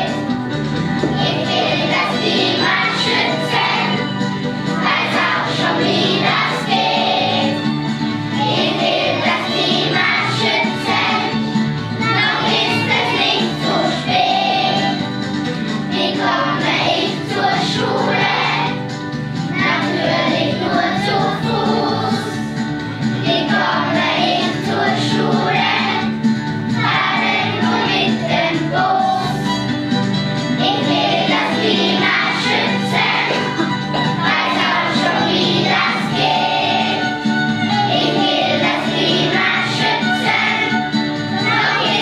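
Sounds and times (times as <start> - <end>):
children's choir singing: 0.0 - 29.7, 30.6 - 42.0.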